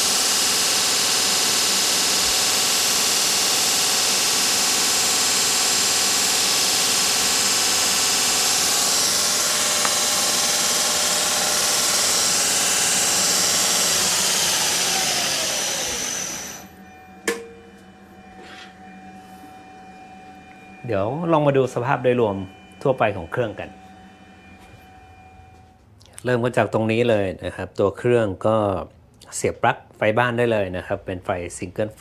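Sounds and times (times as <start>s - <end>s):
belt grinder running: 0.0s - 17.0s.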